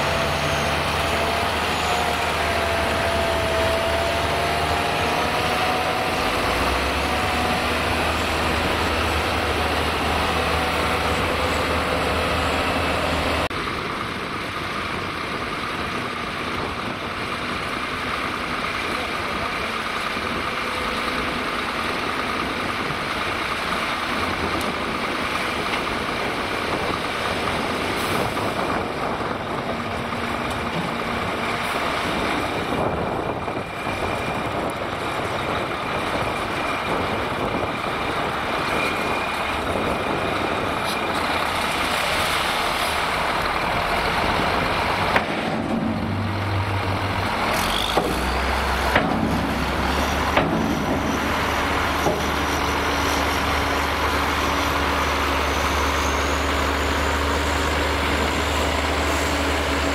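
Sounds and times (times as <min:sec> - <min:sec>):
diesel truck engine running: 0:00.0 - 0:59.9.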